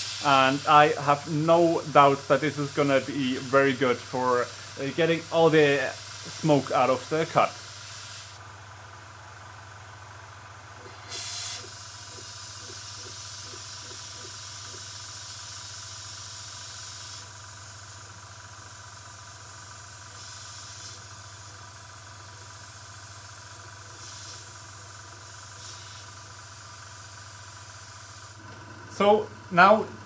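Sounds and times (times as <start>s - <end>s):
air puffs: 0.0s - 0.7s, 5.9s - 6.7s, 10.8s - 17.9s, 20.1s - 21.3s, 23.8s - 28.5s
compressed air hissing from nozzle: 0.0s - 8.4s, 10.8s - 28.4s.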